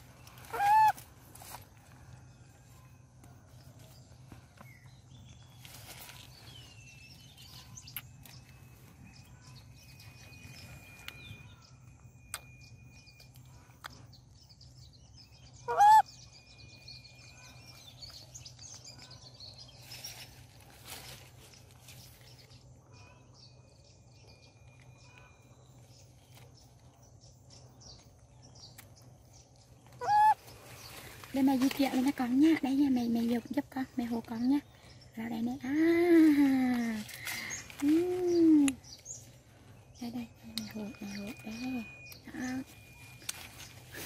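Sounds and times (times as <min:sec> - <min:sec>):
loud animal call: 0:30.0 - 0:30.4.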